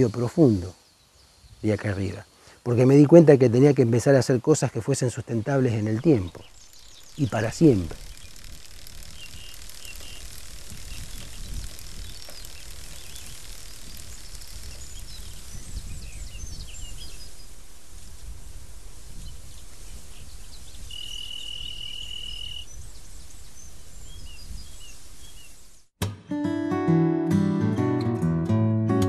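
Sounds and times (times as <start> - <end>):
wind rumble: 6.3 - 25.6
short bird chirps: 20.3 - 25.6
strummed acoustic guitar music: 26.0 - 29.0.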